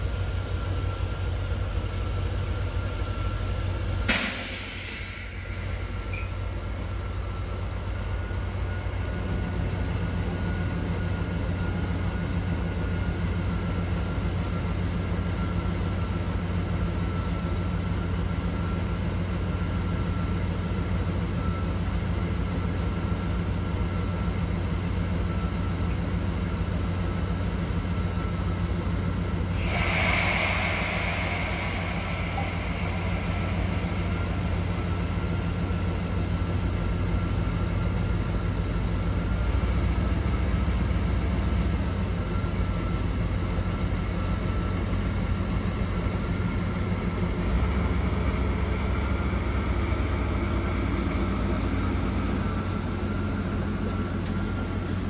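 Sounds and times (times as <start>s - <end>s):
loud hiss of released air: 4.1s - 6.6s, 29.5s - 35.9s
locomotive engine idling: 20.7s - 39.4s.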